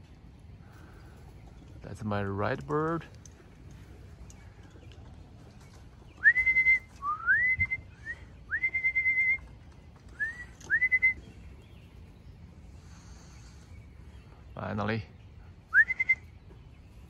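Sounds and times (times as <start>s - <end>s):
person whistling rising calls: 6.2s - 9.5s, 10.1s - 11.3s, 15.7s - 16.3s.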